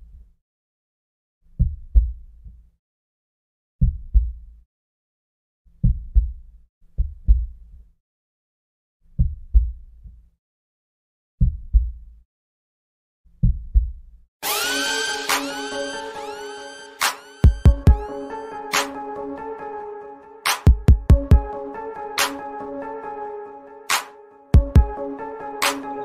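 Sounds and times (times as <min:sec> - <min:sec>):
heartbeat thumps: 0:17.4 - 0:18.0, 0:20.6 - 0:21.5, 0:24.6 - 0:25.0.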